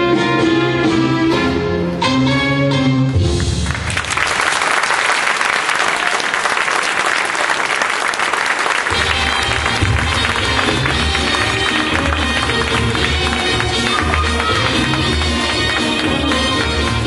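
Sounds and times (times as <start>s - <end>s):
song playing: 0.0s - 3.7s, 8.9s - 17.0s
audience applauding and cheering: 3.2s - 17.0s.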